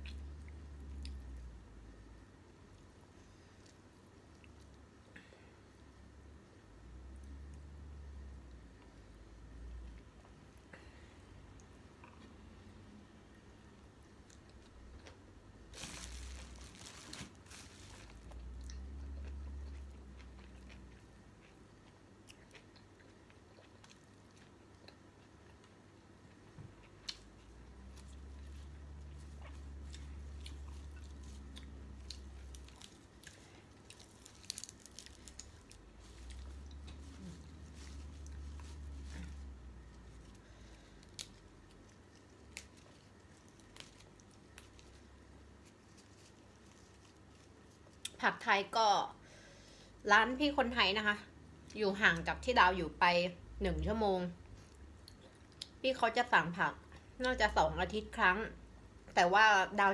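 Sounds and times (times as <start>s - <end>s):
chewing and crunching food: 0.0s - 5.2s, 13.3s - 48.5s, 53.8s - 58.2s
leaves rustling and clicking: 32.0s - 39.4s.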